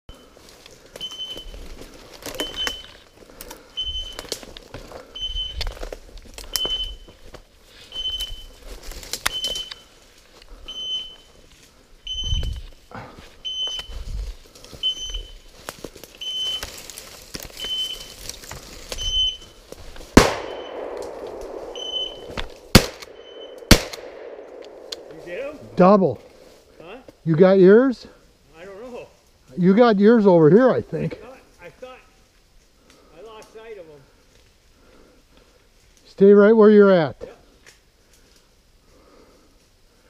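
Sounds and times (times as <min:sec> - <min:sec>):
short high beeps: 0:02.4 - 0:03.0, 0:03.8 - 0:04.3, 0:05.2 - 0:05.7, 0:06.5 - 0:07.1, 0:10.7 - 0:11.3, 0:12.1 - 0:12.6, 0:13.4 - 0:13.9, 0:14.8 - 0:15.4, 0:16.2 - 0:16.6, 0:19.0 - 0:19.4, 0:21.8 - 0:22.4, 0:23.1 - 0:23.6
footsteps crunching dry leaves: 0:07.0 - 0:11.8, 0:12.5 - 0:22.8
shotgun shot: 0:20.2 - 0:25.2.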